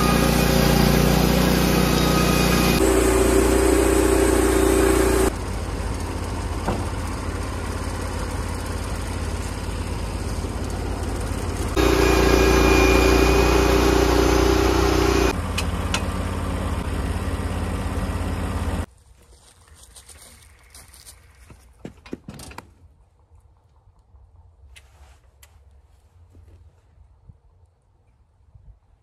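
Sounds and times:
sawmill engine and blade running: 0:00.0 - 0:18.9.

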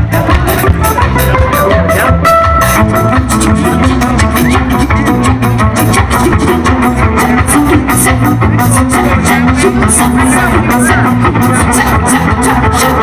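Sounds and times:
bass guitar: 0:00.0 - 0:13.0
drum kit beat: 0:00.0 - 0:13.0.

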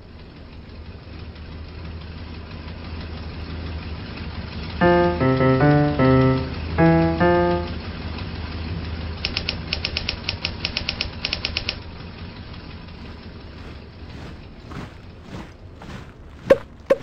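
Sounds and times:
piano note: 0:04.8 - 0:08.0.

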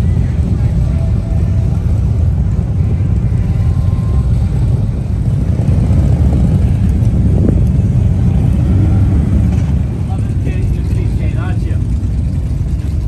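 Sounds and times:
wind buffeting microphone: 0:04.2 - 0:11.1.

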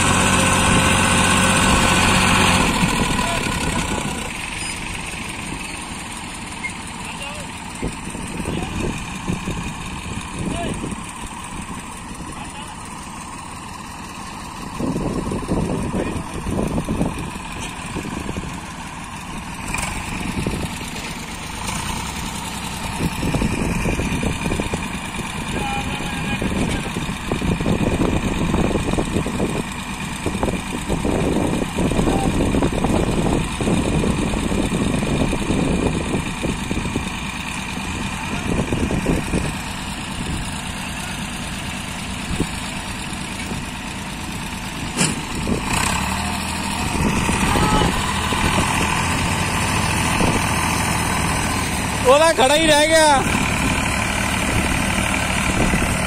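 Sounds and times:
tractor engine under heavy load: 0:00.0 - 0:56.0.

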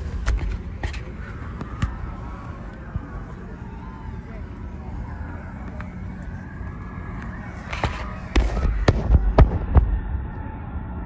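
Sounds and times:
low rumble: 0:00.0 - 0:11.0
sharp bangs: 0:07.6 - 0:10.3.

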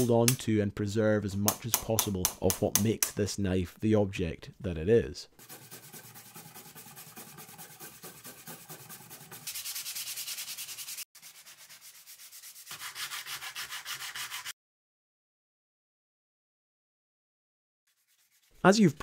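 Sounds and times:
sanding wood by hand: 0:05.4 - 0:14.6, 0:17.9 - 0:18.6.

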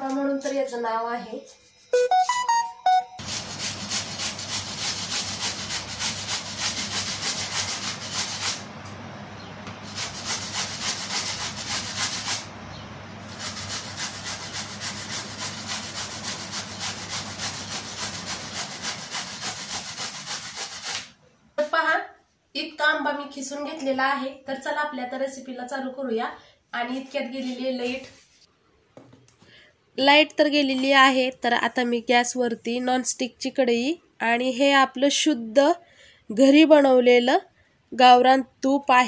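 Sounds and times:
mango grated on metal grater: 0:03.2 - 0:08.6, 0:09.8 - 0:12.5, 0:13.2 - 0:21.1.

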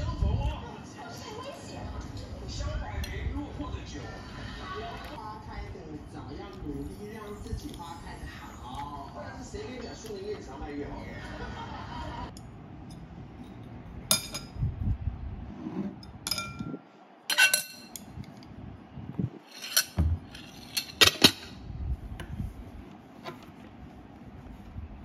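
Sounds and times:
tableware clinking: 0:12.3 - 0:14.6, 0:15.8 - 0:18.1, 0:19.4 - 0:21.6.

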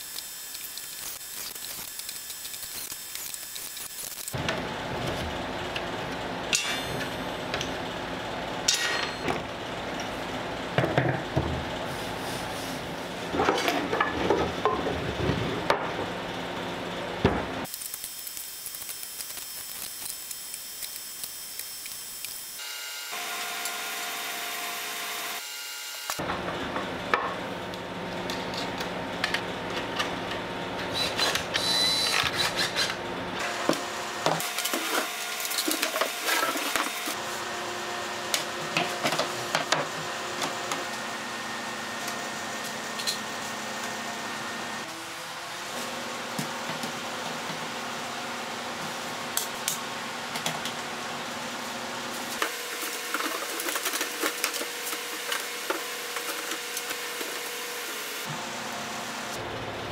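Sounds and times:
cordless drill running: 0:17.7 - 0:26.2.

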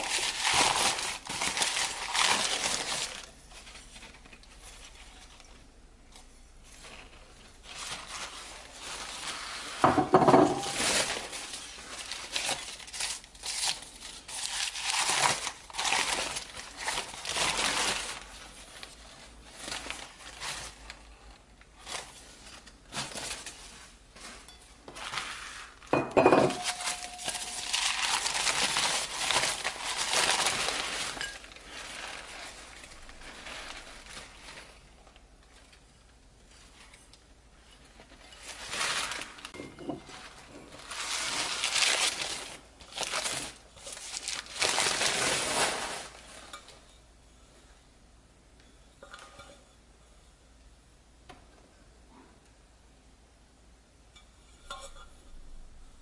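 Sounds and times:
paper crinkling: 0:00.0 - 0:09.9, 0:10.6 - 0:46.6
metal bowls clinking: 0:26.0 - 0:27.8, 0:54.2 - 0:55.6.

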